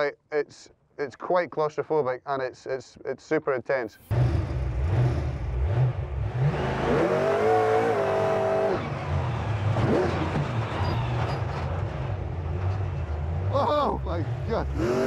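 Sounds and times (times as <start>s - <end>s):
monster truck engine revving: 4.1s - 15.0s.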